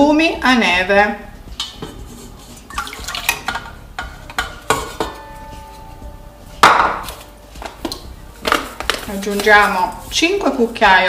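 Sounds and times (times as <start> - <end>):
plastic bowl knocking on metal bowl: 6.6 - 7.0.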